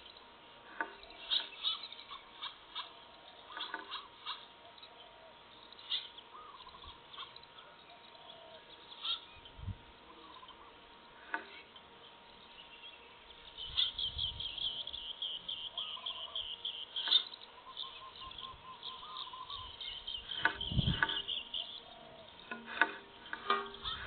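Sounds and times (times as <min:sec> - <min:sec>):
rapid high-pitched chirping: 0:13.3 - 0:22.5.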